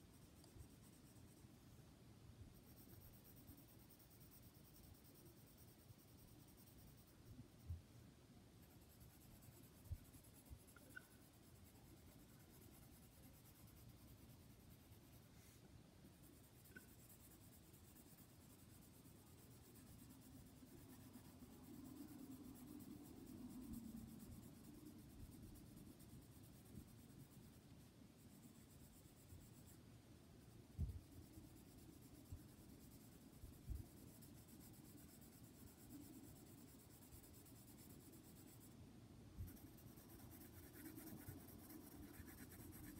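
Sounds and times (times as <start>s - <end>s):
pencil scratching on paper: 8.6s - 15.6s, 16.2s - 29.8s, 30.9s - 38.8s, 39.4s - 42.9s.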